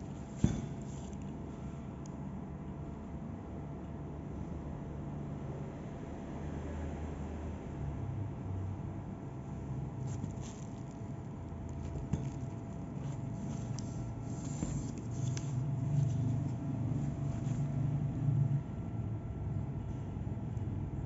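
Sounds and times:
shoe handling rustles and clicks: 0.0 - 1.4, 9.7 - 17.9.

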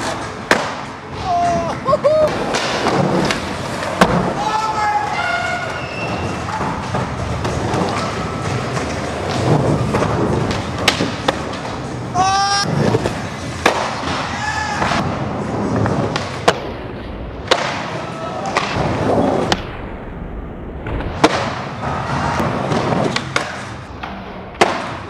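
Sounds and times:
skateboard wheels rolling: 0.0 - 25.0
skateboard smacks and clacks: 5.6 - 11.9, 22.4 - 25.0.

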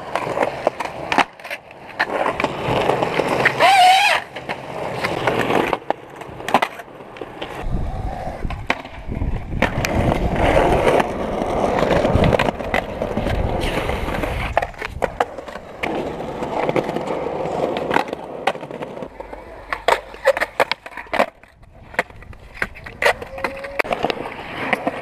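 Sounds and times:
skateboard clacking: 0.0 - 25.0
skateboard grinding on ledge: 0.0 - 25.0
skateboard wheels rolling on concrete: 0.0 - 25.0.

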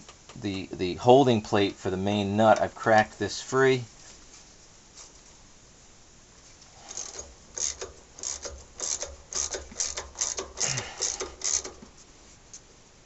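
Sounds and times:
socket ratchet clicking: 6.9 - 11.8.

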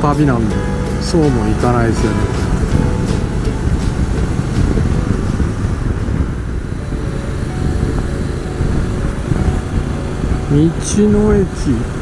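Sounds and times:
motorcycle engine running: 0.0 - 12.0
wind rush on microphone: 1.4 - 12.0.

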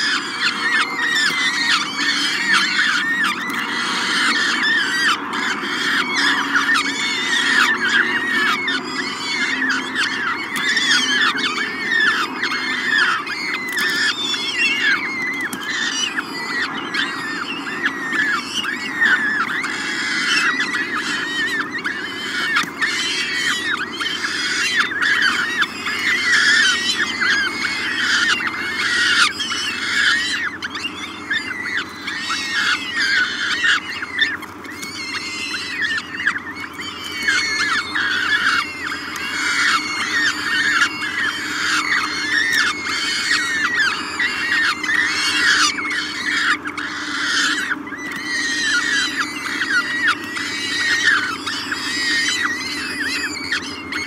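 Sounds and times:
falcon chicks begging calls: 0.0 - 54.0.

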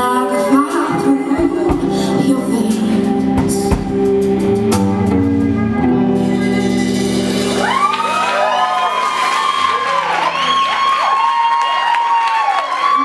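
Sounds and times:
rock band playing: 0.0 - 11.2
drum and cymbal hits: 1.4 - 5.4
audience cheering: 6.9 - 13.0.

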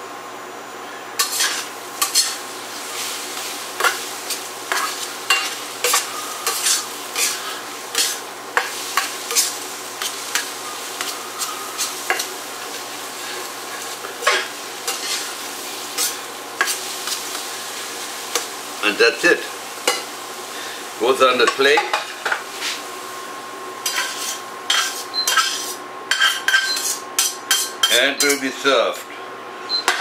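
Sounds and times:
metal spatula scraping a pan: 1.2 - 2.4, 3.0 - 17.3, 23.8 - 28.5
food sizzling: 1.2 - 28.5.

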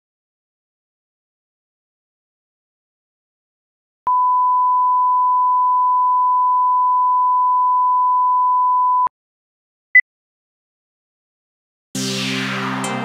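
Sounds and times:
steady test tone beep: 4.1 - 9.1.

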